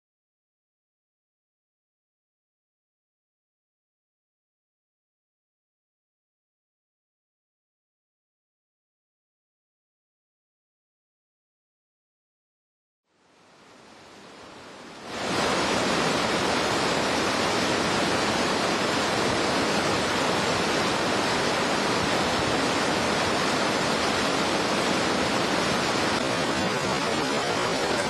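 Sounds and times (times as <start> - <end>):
stream rushing over rocks: 13.2 - 28.0.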